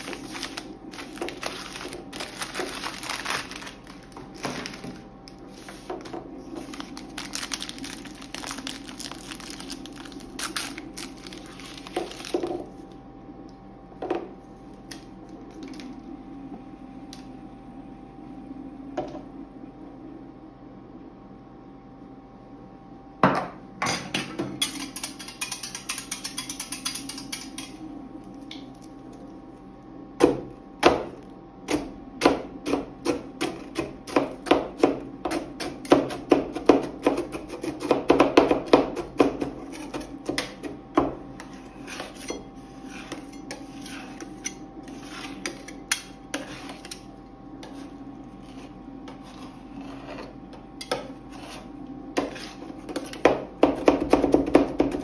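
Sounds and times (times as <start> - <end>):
rasping scrape: 41.4 - 45.6, 46.3 - 47.0, 47.6 - 50.4, 51.2 - 53.2.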